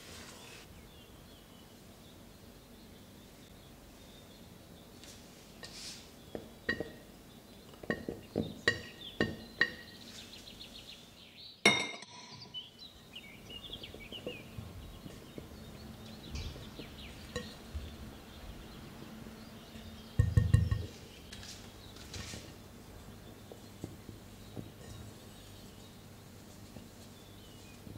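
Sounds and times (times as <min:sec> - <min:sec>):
dishes and glassware clinking: 0:06.7 - 0:07.0, 0:11.7 - 0:12.5, 0:17.2 - 0:17.7, 0:19.8 - 0:21.0.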